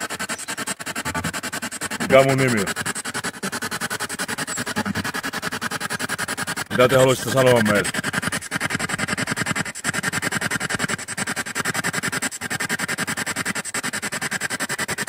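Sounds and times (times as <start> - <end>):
chopped radio static: 0.0 - 11.3.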